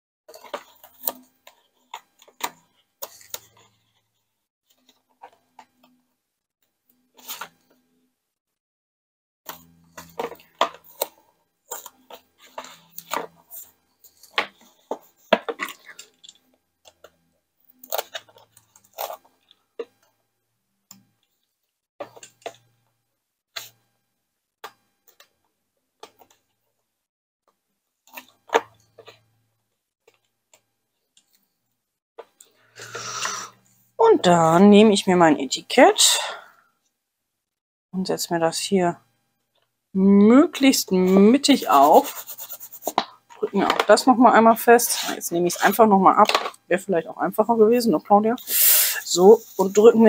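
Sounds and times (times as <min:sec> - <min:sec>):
paper rustling and crinkling: 0:41.6 - 0:43.1.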